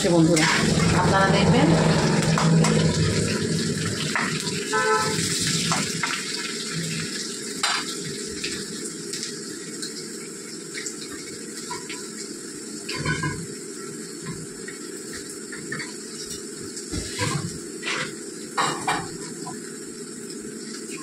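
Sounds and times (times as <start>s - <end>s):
onions sizzling in oil: 0.0s - 21.0s.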